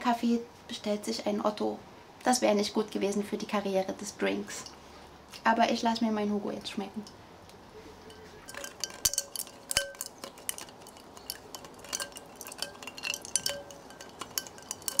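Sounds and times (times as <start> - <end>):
ice cubes clinking in glass: 8.1 - 15.0.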